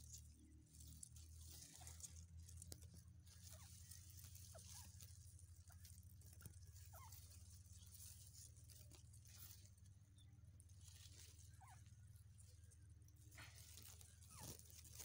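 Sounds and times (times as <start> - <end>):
rice leaves rustling: 0.0 - 10.0, 10.7 - 12.6, 13.2 - 15.0
faint low hum: 0.0 - 15.0.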